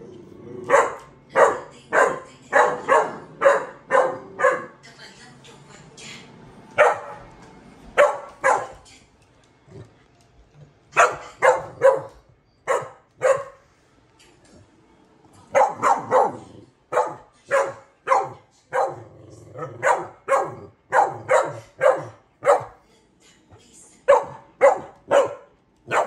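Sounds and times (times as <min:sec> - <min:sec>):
dog barking: 0:00.6 - 0:04.8, 0:06.8 - 0:07.2, 0:08.0 - 0:08.8, 0:11.0 - 0:13.6, 0:15.5 - 0:22.8, 0:24.1 - 0:26.0.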